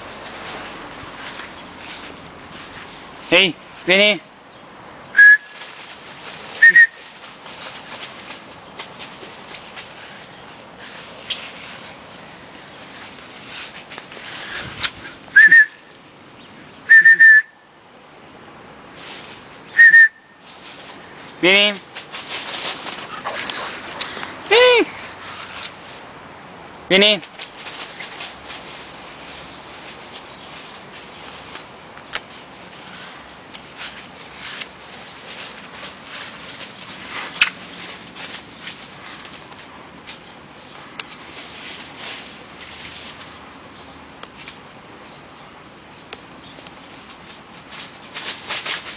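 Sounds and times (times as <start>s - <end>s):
leaves rustling: 0.0s - 17.0s, 17.7s - 48.9s
short high whistles: 5.2s - 5.6s, 6.6s - 7.0s, 14.8s - 15.8s, 16.9s - 17.5s, 19.8s - 20.4s.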